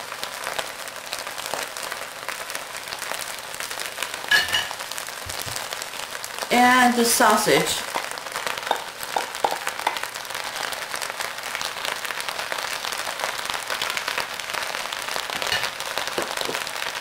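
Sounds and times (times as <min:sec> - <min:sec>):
rice sizzling in a wok: 0:00.0 - 0:17.0
wooden spatula knocks: 0:08.7 - 0:10.0.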